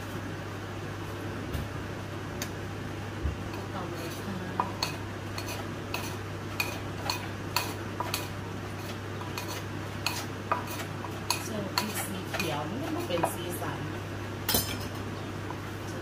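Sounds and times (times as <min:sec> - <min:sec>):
pestle pounding in mortar: 0:09.3 - 0:13.4.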